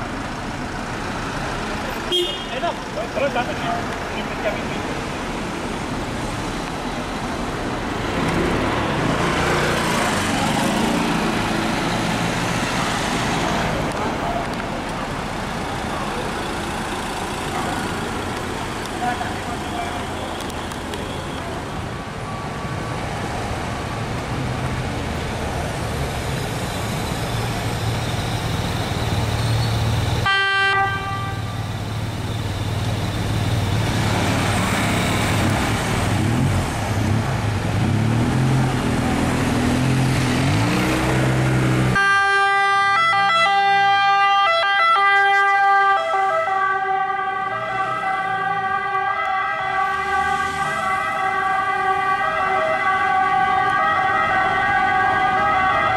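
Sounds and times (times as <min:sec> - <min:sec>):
city traffic: 0:00.0 - 0:55.9
emergency vehicle engines: 0:00.0 - 0:55.9
ambulance siren: 0:30.2 - 0:33.4, 0:41.9 - 0:55.9.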